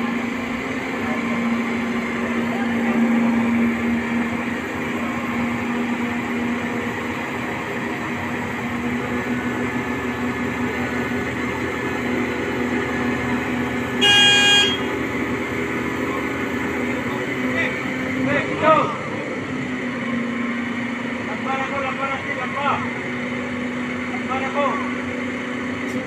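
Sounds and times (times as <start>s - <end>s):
diesel engine humming: 0.0s - 26.0s
short horn toot: 14.0s - 14.9s.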